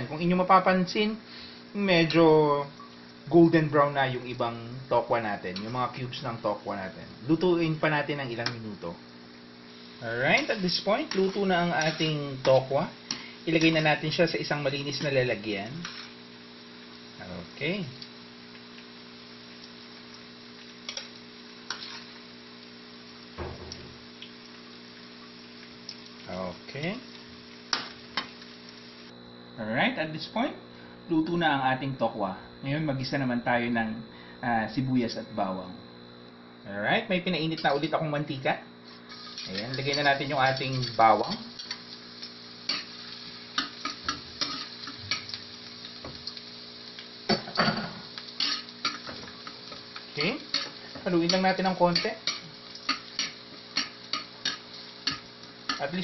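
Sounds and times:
electrical hum: 0.0 - 56.0
tofu sizzling in oil: 1.3 - 29.2, 38.7 - 56.0
metal spatula scraping wok: 10.4 - 13.7, 15.8 - 16.2, 21.7 - 22.1, 38.9 - 41.8, 43.6 - 45.4, 48.4 - 49.2, 50.2 - 55.9.

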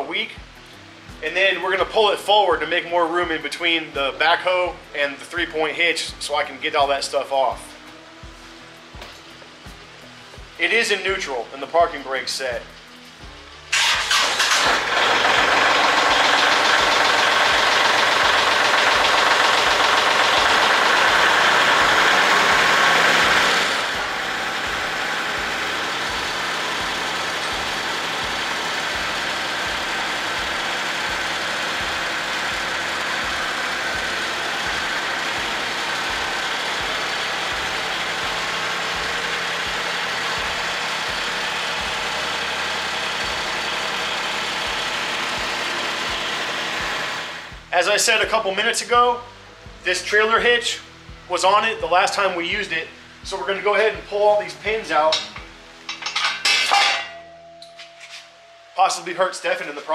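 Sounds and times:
tractor diesel engine idling: 13.7 - 47.5.

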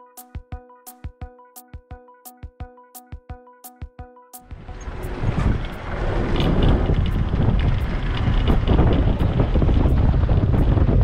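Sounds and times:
car road rumble: 4.5 - 11.0
wind buffeting microphone: 4.5 - 11.0.

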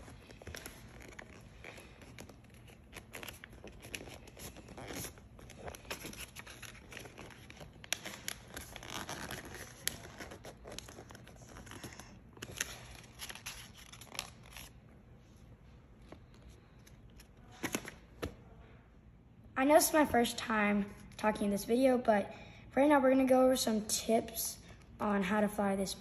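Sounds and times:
paper rustling and creasing: 0.0 - 14.8.

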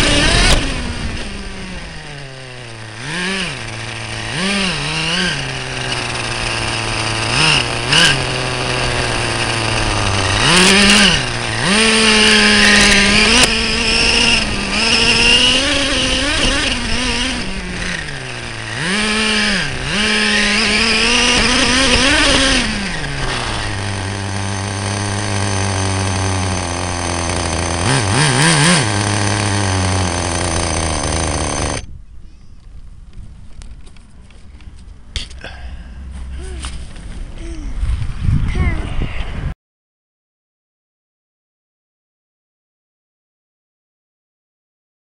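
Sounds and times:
model engine revving: 0.0 - 31.9.

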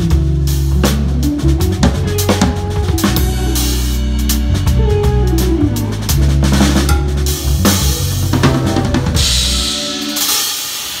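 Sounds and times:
live band playing: 0.0 - 11.0
bass line: 4.8 - 9.6
drum kit hits: 6.9 - 9.6.

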